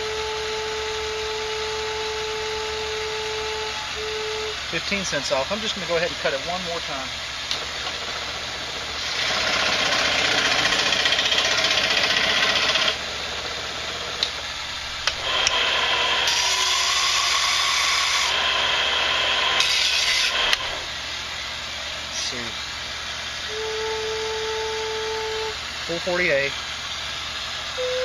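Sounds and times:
power saw cutting wood: 5.6s - 21.1s.

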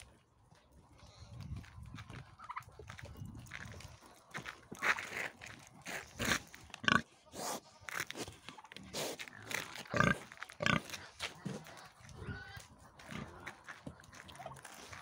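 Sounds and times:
wild boar grunting: 8.9s - 15.0s.

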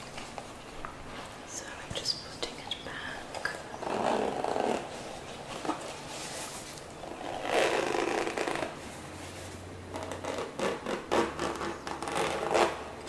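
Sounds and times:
zipper pulled: 3.8s - 8.9s, 9.9s - 12.9s.

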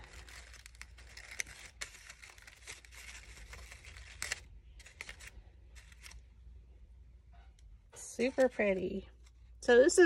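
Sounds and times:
paper rustling and crinkling: 0.0s - 6.3s.

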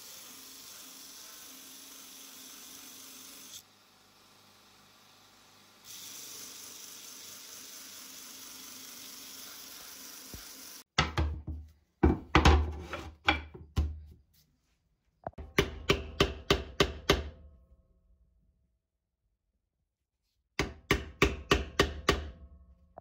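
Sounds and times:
belt sander grinding metal: 0.0s - 3.6s
wooden boards knocking on floor: 11.0s - 14.0s
hammer tapping on chisel: 15.3s - 17.3s, 20.6s - 22.4s.

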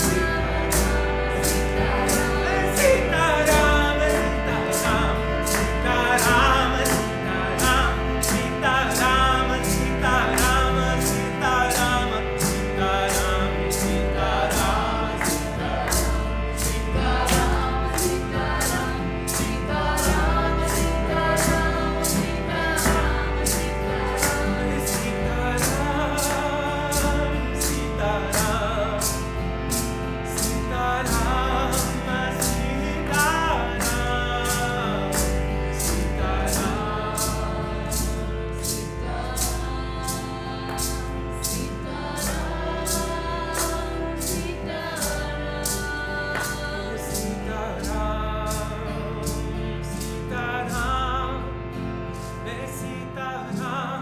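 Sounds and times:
group chanting: 0.0s - 28.5s, 35.7s - 47.3s
held drone: 0.0s - 54.0s.

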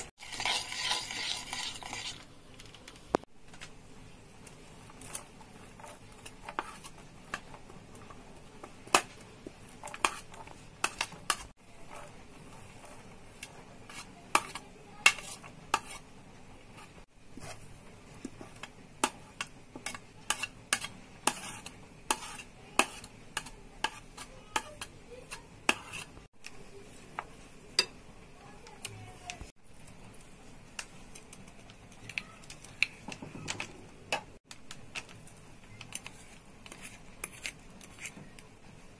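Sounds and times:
batter being stirred: 0.0s - 38.9s
spoon scraping glass bowl: 0.2s - 2.3s, 19.8s - 26.1s.

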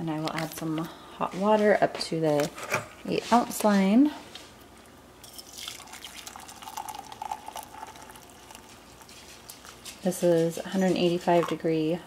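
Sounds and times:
water pouring into a glass teapot: 5.3s - 9.1s.

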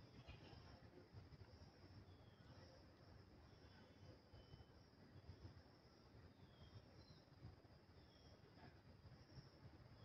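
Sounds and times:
faint high hiss: 0.0s - 10.0s.

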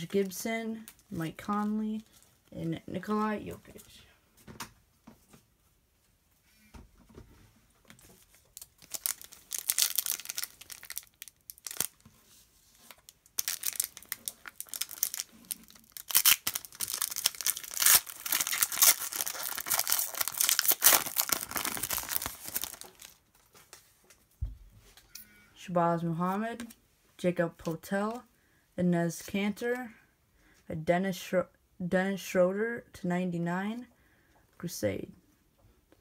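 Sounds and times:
foil wrapper tearing and crinkling: 8.3s - 12.0s, 12.9s - 23.2s.

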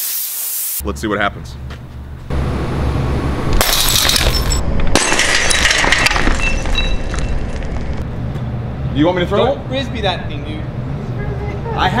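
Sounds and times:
glass shards tinkling: 3.6s - 8.0s
glass smashing on asphalt: 3.6s - 8.0s.

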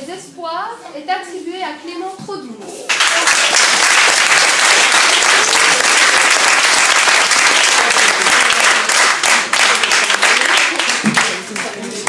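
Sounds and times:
small group clapping: 2.9s - 12.0s.

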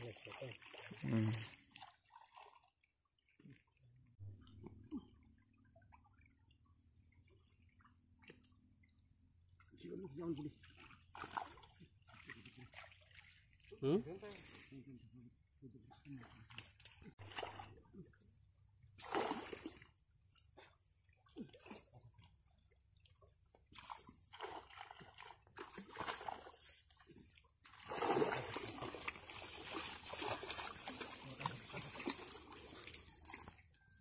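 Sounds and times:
pond water splashing: 0.0s - 15.2s, 16.0s - 34.0s.

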